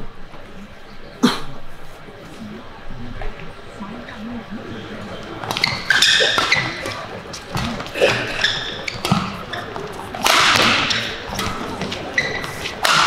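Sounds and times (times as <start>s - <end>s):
shoes squeaking on court: 5.1s - 13.0s
rackets striking shuttlecock: 5.4s - 13.0s.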